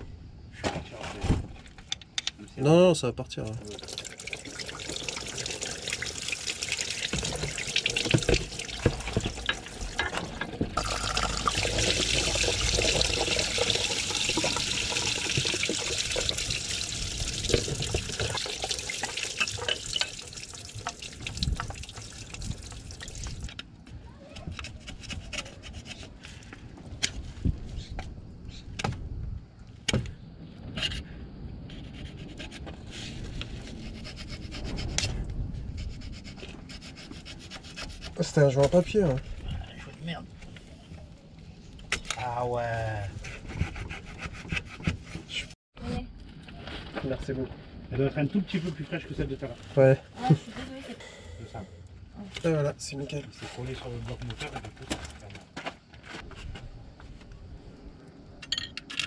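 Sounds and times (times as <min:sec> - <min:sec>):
steady watery hiss: 0:03.6 - 0:23.5
metal tools knocking and scraping: 0:58.4 - 0:59.0.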